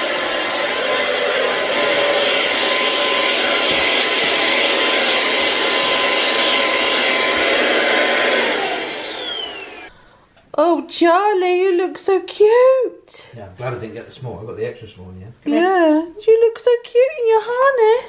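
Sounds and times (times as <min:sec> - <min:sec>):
vacuum cleaner running: 0:00.0 - 0:10.0
vacuum motor winding down: 0:00.0 - 0:10.0.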